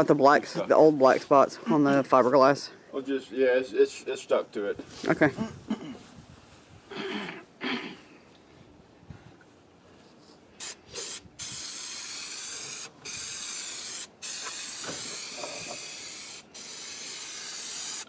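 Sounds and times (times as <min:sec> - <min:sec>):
aerosol can spraying: 0:10.6 - 0:18.0.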